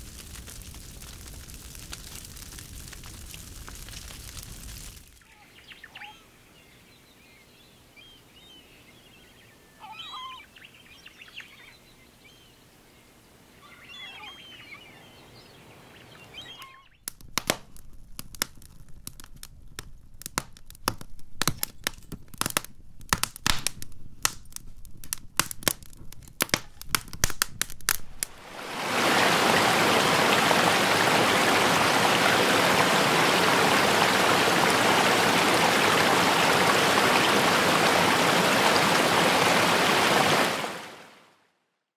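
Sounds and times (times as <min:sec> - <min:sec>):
falling water splashing: 0:00.0 - 0:05.2, 0:26.4 - 0:41.2
wood fire crackling: 0:00.0 - 0:05.2, 0:17.0 - 0:40.8
soft bird chirps: 0:05.2 - 0:17.0.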